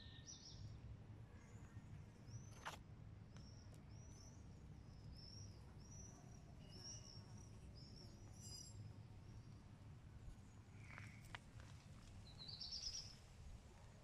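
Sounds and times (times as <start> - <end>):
small bird chirping: 12.2 - 13.2.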